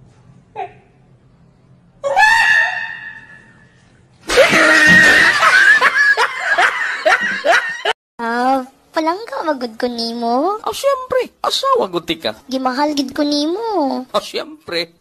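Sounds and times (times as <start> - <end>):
man laughing hysterically: 4.3 - 7.9.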